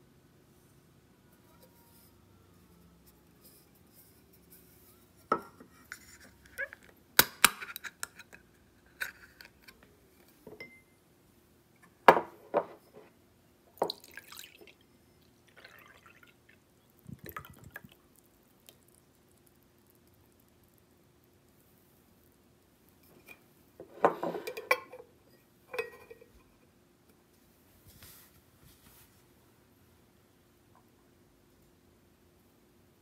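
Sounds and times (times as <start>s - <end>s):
coffee pouring into glass: 13.8s - 19.0s.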